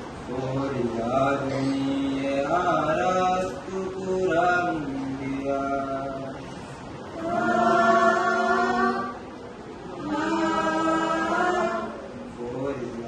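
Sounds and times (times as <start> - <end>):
group singing unaccompanied: 7.1 - 12.3.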